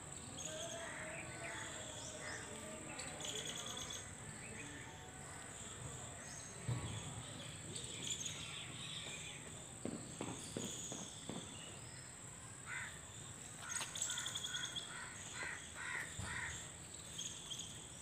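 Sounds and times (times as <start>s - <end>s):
thump: 6.6s - 7.2s.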